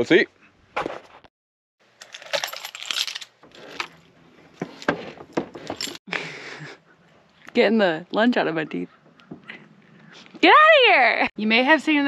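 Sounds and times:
keys jangling: 0:02.0 - 0:04.0, 0:05.6 - 0:06.0.

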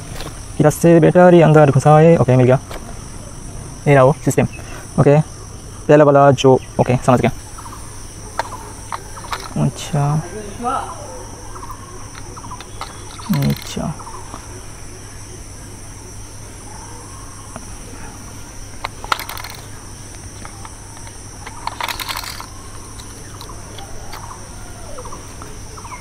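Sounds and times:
insect chirring: 0:00.0 - 0:26.0
batteries clicking into compartment: 0:08.3 - 0:09.7, 0:12.1 - 0:13.9, 0:18.8 - 0:24.4
battery door closing: 0:12.1 - 0:13.9, 0:18.8 - 0:24.5.

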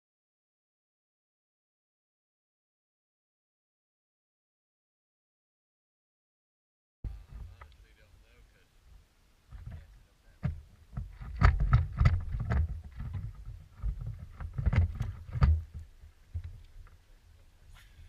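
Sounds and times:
knocks and slaps on boat hull: 0:10.4 - 0:15.8.

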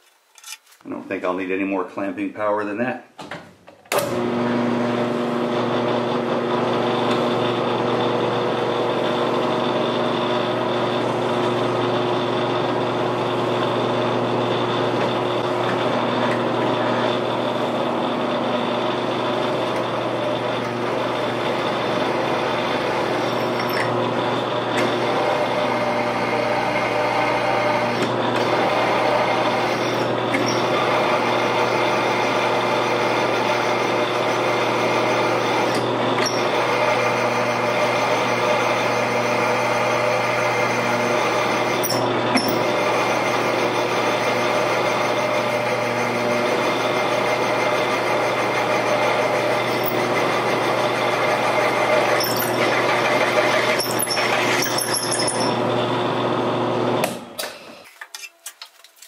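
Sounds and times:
mill-drill drilling into steel: 0:18.3 - 0:57.9.

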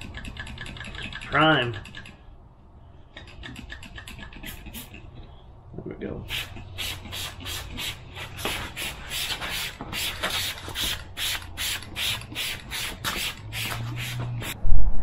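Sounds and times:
spray bottle hissing sprays: 0:04.3 - 0:05.0, 0:06.3 - 0:14.6.

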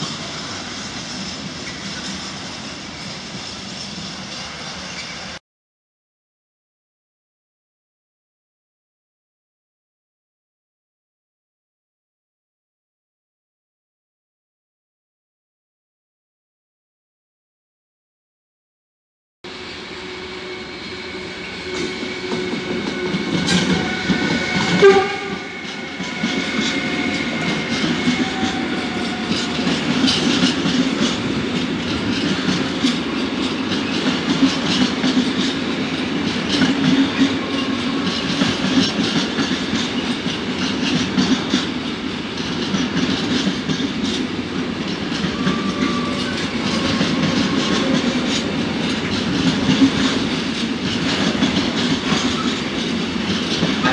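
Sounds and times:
electric locomotive high tones: 0:19.5 - 0:34.0, 0:36.7 - 0:38.6, 0:45.0 - 0:49.2
freight wagons rumbling and clacking: 0:22.3 - 0:53.9.

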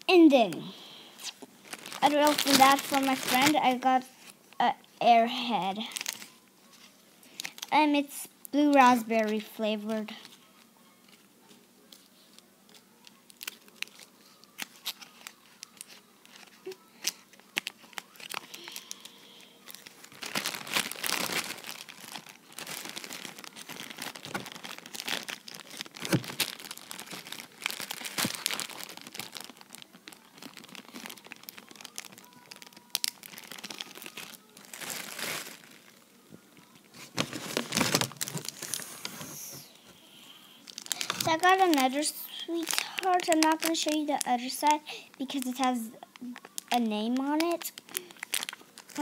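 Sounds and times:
plastic wrappers crinkling: 0:01.2 - 0:04.6, 0:05.6 - 0:07.8, 0:08.5 - 0:40.0, 0:40.6 - 0:49.0.

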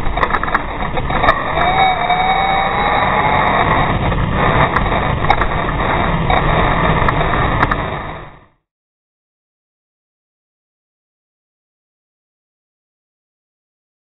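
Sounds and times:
toy truck drivetrain rumble: 0:00.0 - 0:08.5.

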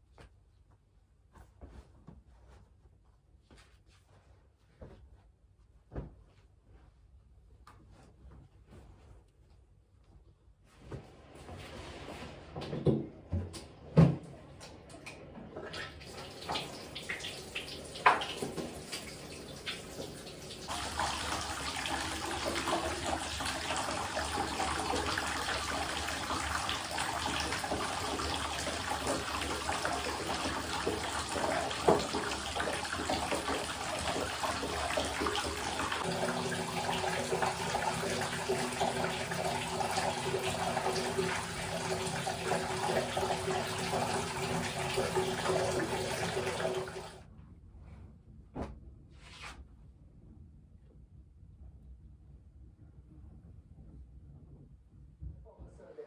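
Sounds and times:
sink tap running: 0:15.8 - 0:47.2.

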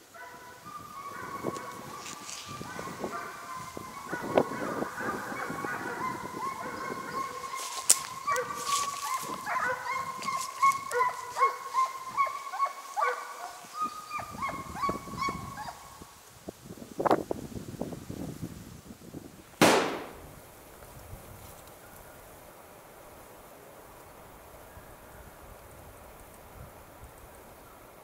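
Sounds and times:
hounds baying: 0:00.0 - 0:15.9.

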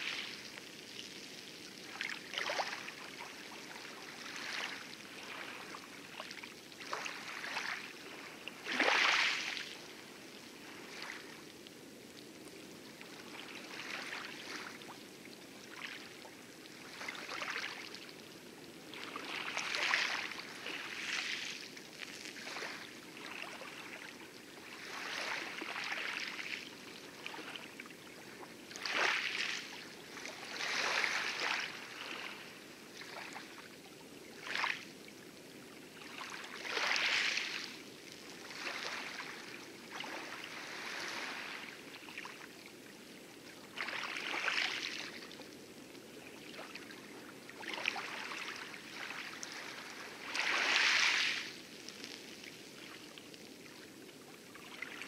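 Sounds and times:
light waves washing: 0:00.0 - 0:55.0
oar strokes splashing: 0:47.6 - 0:53.1.

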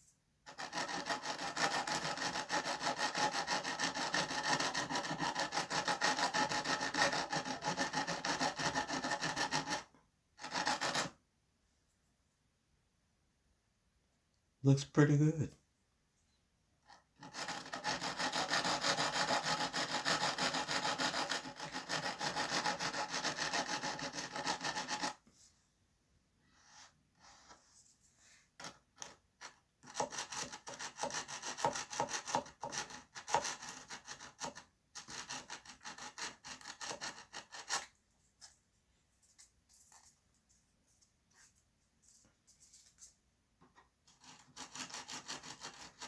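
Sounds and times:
sanding stick rubbing on wood: 0:00.5 - 0:11.1, 0:17.2 - 0:25.2, 0:29.8 - 0:37.9, 0:44.1 - 0:46.0.

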